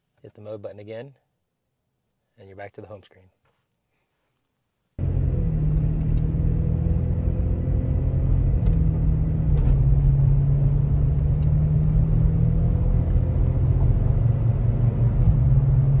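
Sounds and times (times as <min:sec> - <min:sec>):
low engine hum: 0:05.0 - 0:16.0.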